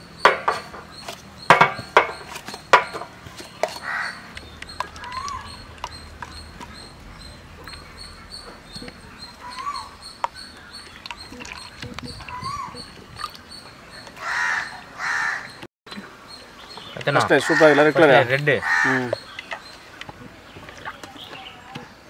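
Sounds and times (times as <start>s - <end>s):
crow cawing: 3.8s - 4.3s, 14.2s - 15.6s, 17.3s - 18.0s, 18.6s - 19.2s.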